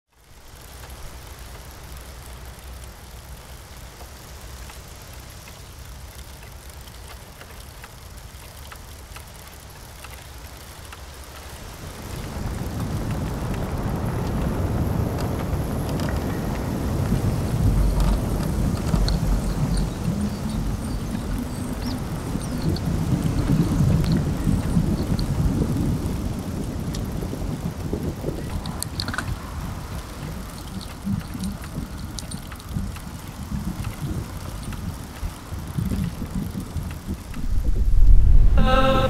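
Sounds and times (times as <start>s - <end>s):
light ticks and rattles: 0.1s - 37.9s
wind buffeting microphone: 11.5s - 39.0s.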